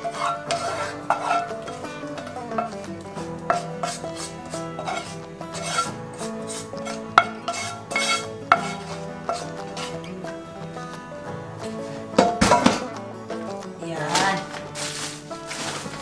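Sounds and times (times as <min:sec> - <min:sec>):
spatula tapping a pan: 0:00.0 - 0:11.0
wooden spatula scraping a pan: 0:00.0 - 0:12.9, 0:13.9 - 0:16.0
background music: 0:00.0 - 0:16.0.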